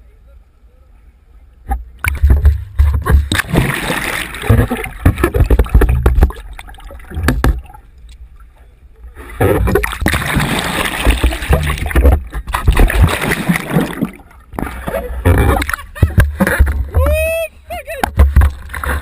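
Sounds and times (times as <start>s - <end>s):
water sloshing and gurgling: 1.6s - 17.2s, 18.0s - 19.0s
low thumps: 1.7s - 7.8s, 9.4s - 17.3s.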